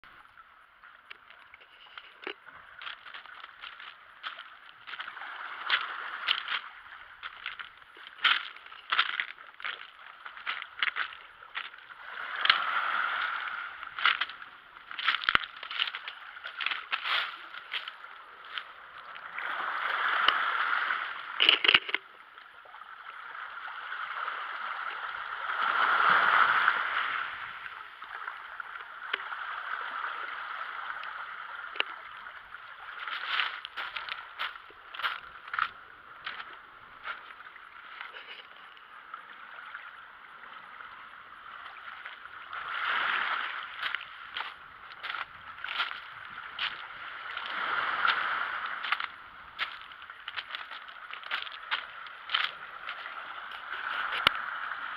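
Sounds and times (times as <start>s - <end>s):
waves lapping on pebbles: 0.1s - 54.9s.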